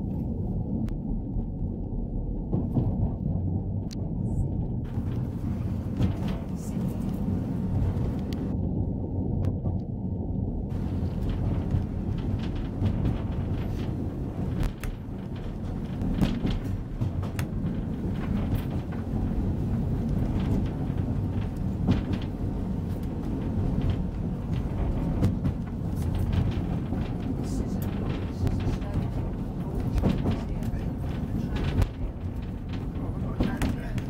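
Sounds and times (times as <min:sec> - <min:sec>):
train wheels rumbling on rails: 0:00.0 - 0:08.6, 0:10.6 - 0:34.0
clicks and knocks: 0:10.7 - 0:34.0.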